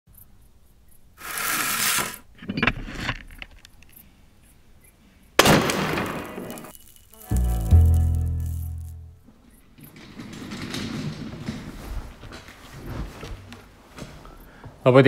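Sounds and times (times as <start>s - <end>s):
rustling: 6.5s - 14.6s
wooden pulley block clunk and rattle: 9.7s - 12.6s.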